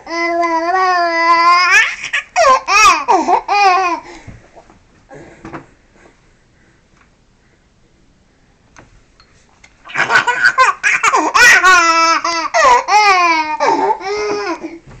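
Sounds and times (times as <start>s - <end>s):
baby laughing: 0.1s - 4.0s, 9.9s - 14.8s.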